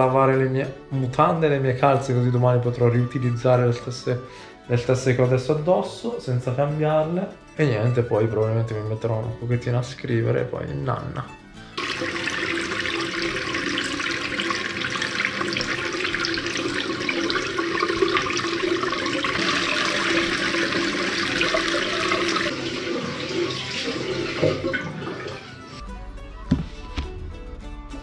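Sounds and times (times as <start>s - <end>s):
clothes splashing in basin: 11.8s - 25.8s
water running from tap: 11.8s - 25.8s.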